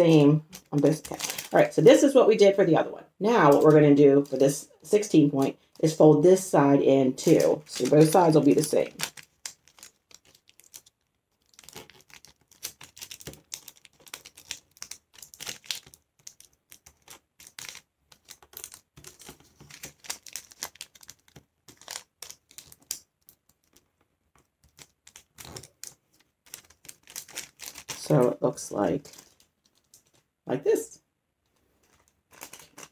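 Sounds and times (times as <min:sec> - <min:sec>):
paper rustling and crinkling: 0:00.1 - 0:01.7, 0:07.2 - 0:30.3, 0:31.5 - 0:32.9.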